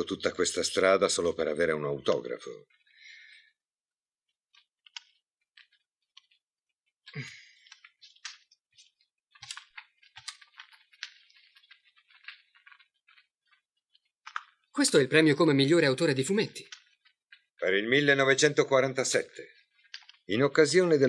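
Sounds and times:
soft footsteps: 0:04.3 - 0:15.0
rustling: 0:04.3 - 0:21.0.

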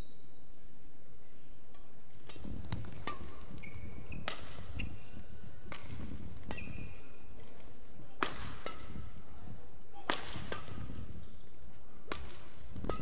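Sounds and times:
racket striking shuttlecock: 0:01.7 - 0:07.2, 0:08.2 - 0:09.2, 0:10.0 - 0:11.2, 0:12.0 - 0:13.0
shoes squeaking on court: 0:02.2 - 0:09.0.

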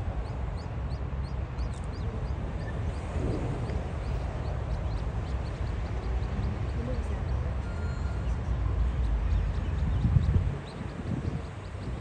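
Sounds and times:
ducklings peeping: 0:00.0 - 0:12.0
low rumble: 0:01.6 - 0:07.3.

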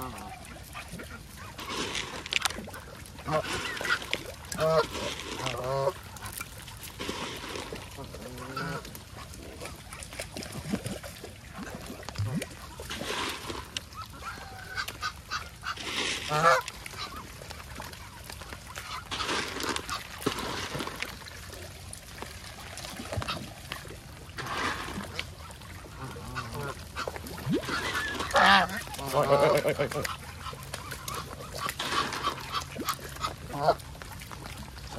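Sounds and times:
geese honking: 0:03.2 - 0:06.0, 0:08.0 - 0:08.9, 0:13.9 - 0:17.3, 0:25.5 - 0:33.8.

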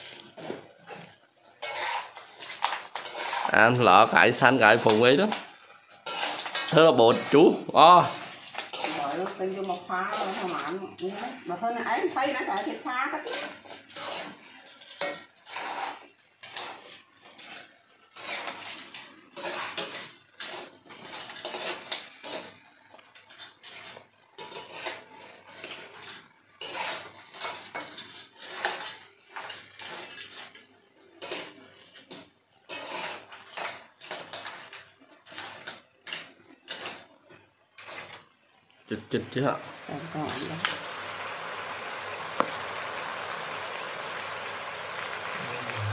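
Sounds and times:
spatula scraping a wok: 0:00.0 - 0:45.9.

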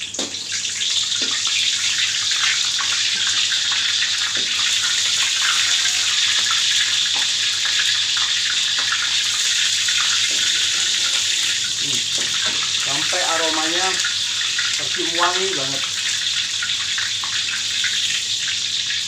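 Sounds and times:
lemongrass sizzling in hot oil: 0:00.0 - 0:19.0.

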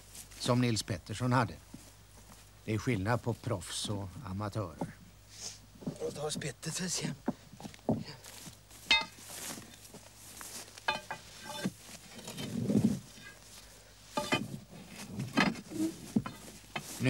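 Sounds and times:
crowbar clinking against stone: 0:08.9 - 0:09.2, 0:10.8 - 0:12.6, 0:14.2 - 0:14.6.

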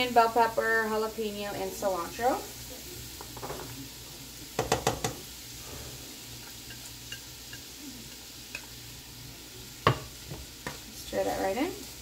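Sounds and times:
low steady sizzle: 0:00.0 - 0:12.0.

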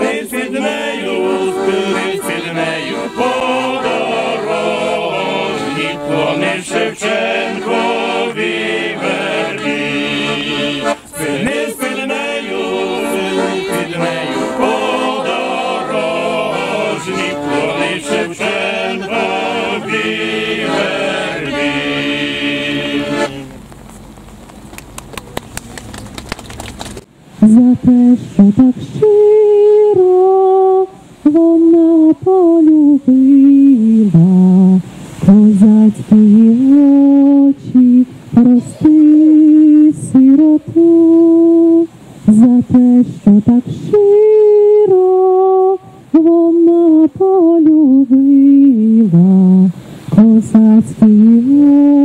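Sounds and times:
group of people singing: 0:00.0 - 0:23.5
quiet outdoor background: 0:00.0 - 0:52.0.

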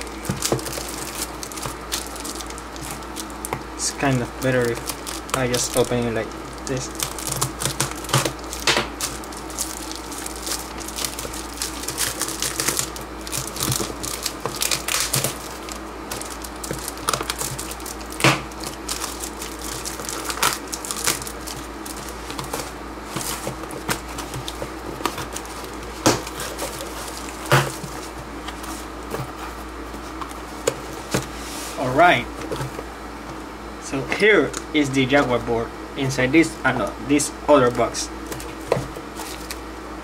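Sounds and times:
tape and cardboard tearing: 0:00.0 - 0:30.3
plastic wrap crinkling: 0:00.0 - 0:33.0, 0:38.1 - 0:39.7.

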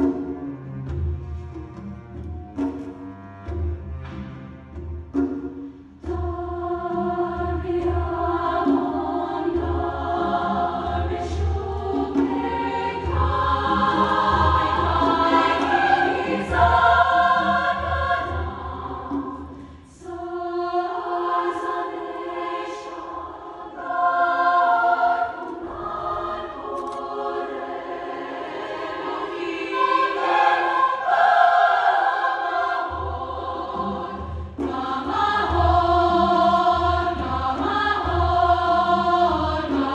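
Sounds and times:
cello playing low notes: 0:00.0 - 0:05.2
women's choir singing in harmony: 0:04.1 - 0:39.9.

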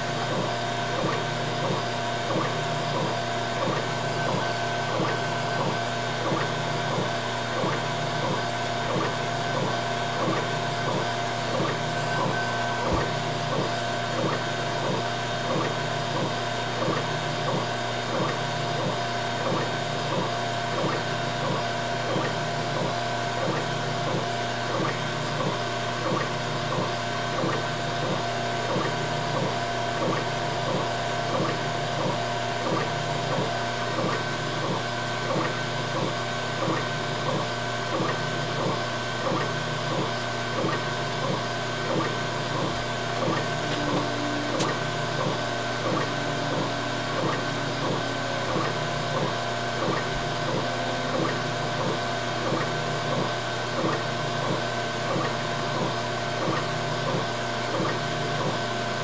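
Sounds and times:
steady machine hum: 0:00.0 - 0:59.0
laser engraver head moving: 0:43.2 - 0:52.8.

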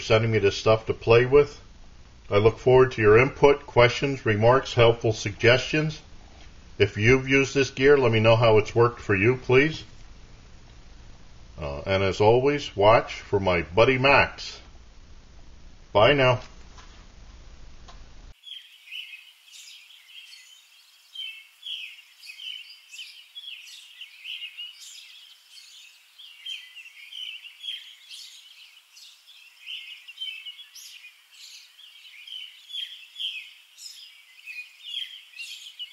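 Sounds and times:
birds chirping and singing: 0:18.4 - 0:35.9.

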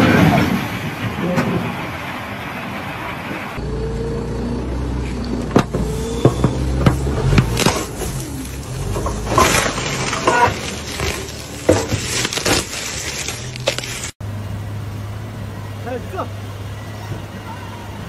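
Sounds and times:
windshield glass cracking: 0:05.6 - 0:14.2.

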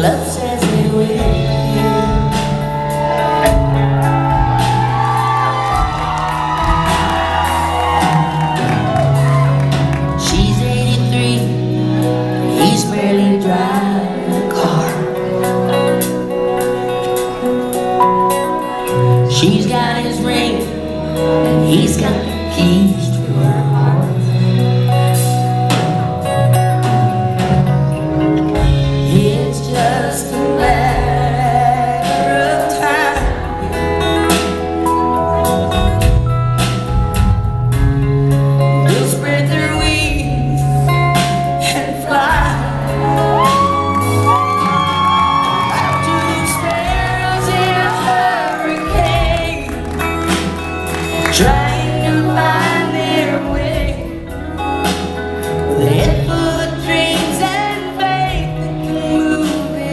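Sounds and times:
woman singing: 0:00.0 - 0:03.2, 0:10.2 - 0:16.0, 0:19.2 - 0:24.6, 0:28.6 - 0:33.9, 0:38.8 - 0:59.9
country band playing: 0:00.0 - 0:59.9.

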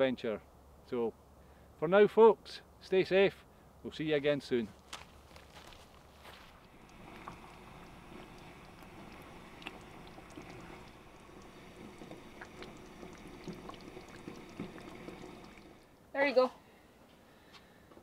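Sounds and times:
curry bubbling in a pan: 0:06.6 - 0:15.9.

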